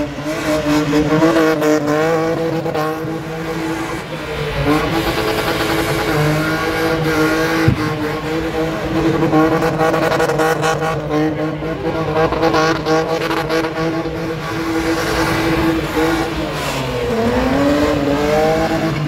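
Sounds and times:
car engine at high revs: 0.0s - 19.0s
sharp knock: 7.7s - 7.9s.

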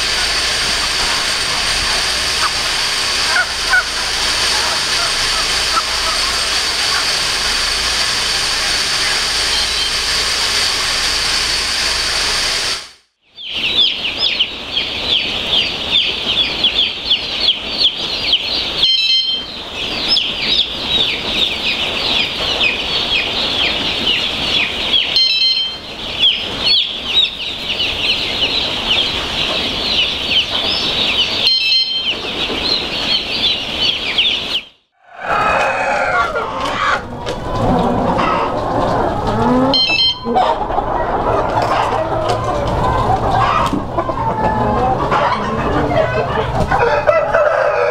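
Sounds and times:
hens clucking: 0.0s - 10.0s, 35.0s - 47.9s
chicks peeping: 0.0s - 10.4s, 13.4s - 47.9s
steady machine hum: 0.0s - 47.9s.

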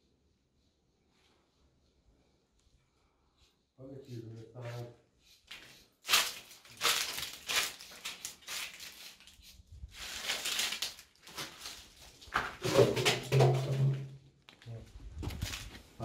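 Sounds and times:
rustling: 4.6s - 13.8s, 14.5s - 16.0s
footsteps crunching on gritty floor: 5.4s - 8.8s, 14.5s - 16.0s.

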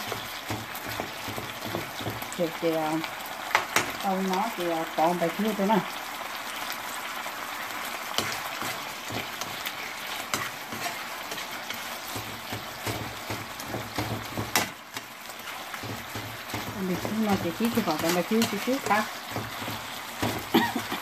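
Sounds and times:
spatula scraping and knocking pan: 0.0s - 2.6s, 8.1s - 21.0s
vegetables sizzling in a frying pan: 0.0s - 21.0s.

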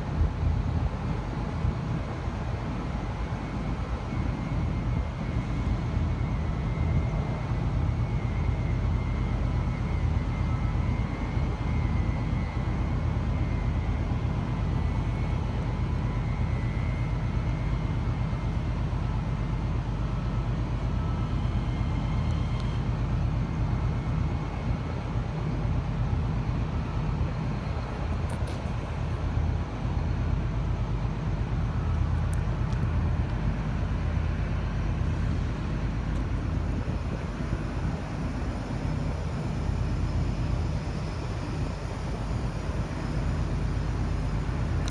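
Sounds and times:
faint high whine: 0.0s - 44.9s
train low rumble: 0.0s - 44.9s.

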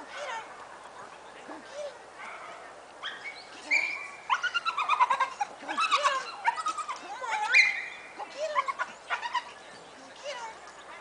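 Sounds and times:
dog whining and yelping: 3.1s - 9.6s.

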